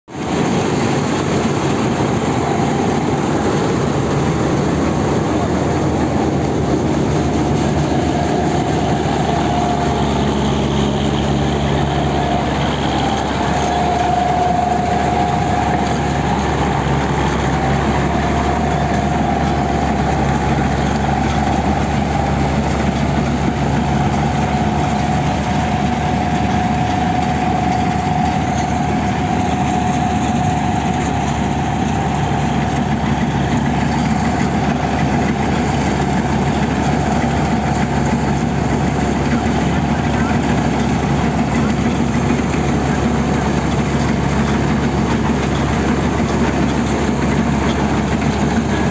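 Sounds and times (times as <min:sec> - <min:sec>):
combine harvester engine drone: 0:00.1 - 0:48.9
continuous machinery whine: 0:00.1 - 0:48.9.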